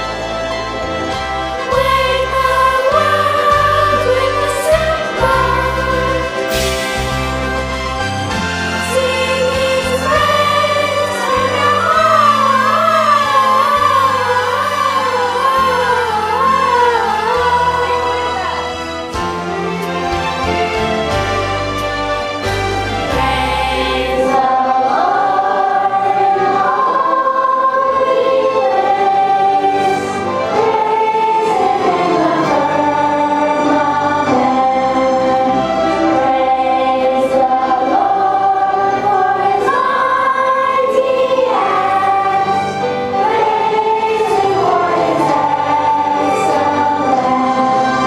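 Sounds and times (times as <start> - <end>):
children's choir singing: 0.0 - 48.0
instrumental accompaniment: 0.0 - 48.0.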